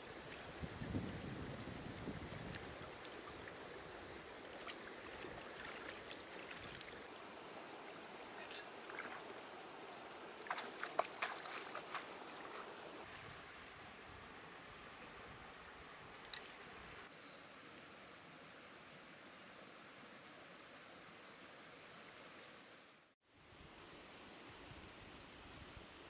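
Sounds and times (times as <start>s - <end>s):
rocky stream running: 0.0s - 13.3s
water splashing around hands: 4.5s - 7.1s, 10.4s - 12.9s.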